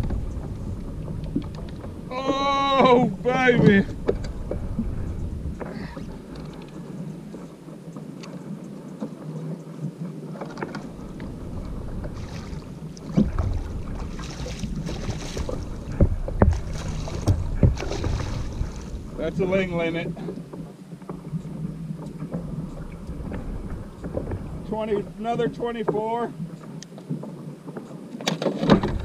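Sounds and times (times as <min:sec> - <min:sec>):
water sloshing and splashing: 0:00.0 - 0:29.0
knocks against kayak: 0:15.4 - 0:18.2.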